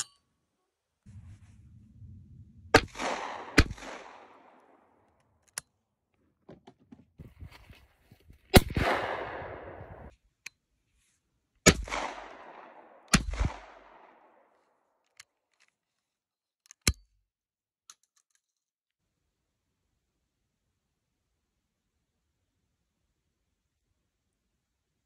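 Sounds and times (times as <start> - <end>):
shotgun shots with echo: 2.8 - 4.8, 8.6 - 10.1, 11.7 - 14.2.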